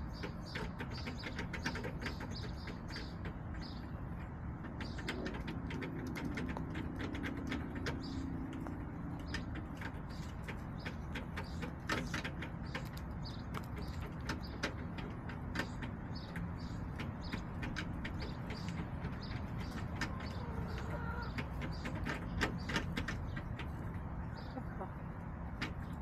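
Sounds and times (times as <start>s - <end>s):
hens pecking taps: 0.0s - 26.0s.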